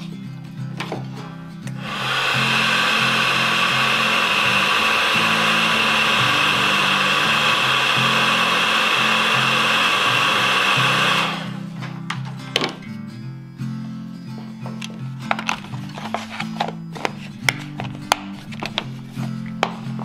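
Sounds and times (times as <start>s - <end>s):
heat gun blowing: 1.8s - 11.8s.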